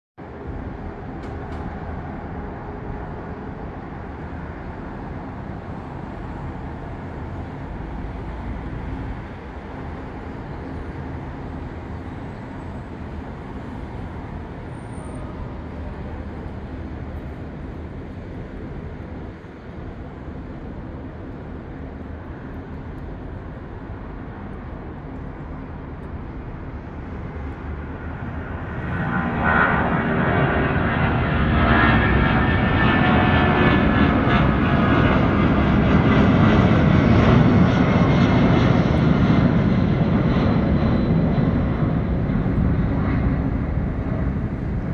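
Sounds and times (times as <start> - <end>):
distant jet engines roaring: 0.2 - 44.9.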